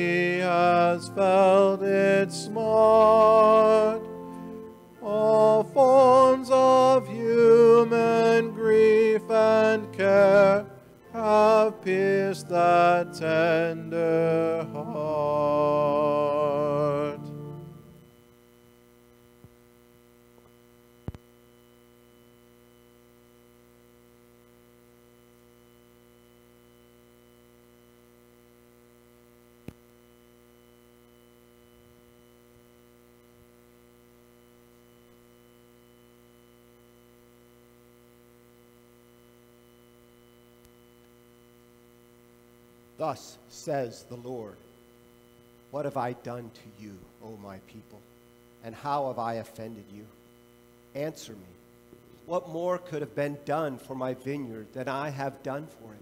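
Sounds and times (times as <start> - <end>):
people singing a hymn: 0.0 - 17.5
electrical mains hum: 0.0 - 56.0.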